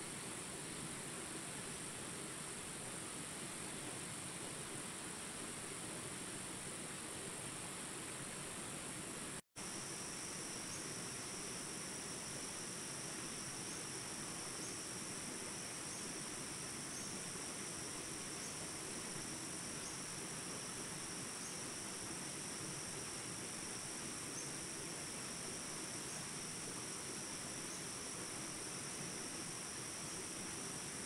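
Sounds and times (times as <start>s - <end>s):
background hiss: 0.0s - 31.0s
insects chirping: 9.6s - 31.0s.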